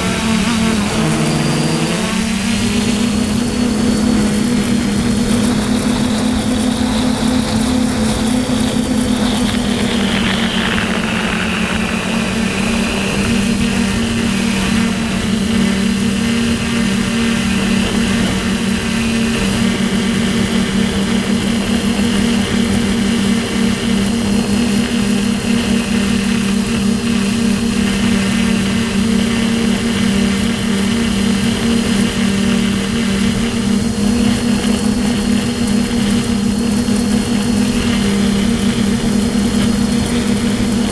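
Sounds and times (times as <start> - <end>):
drone motors humming: 0.0 - 40.9
wind noise on microphone: 0.0 - 40.9.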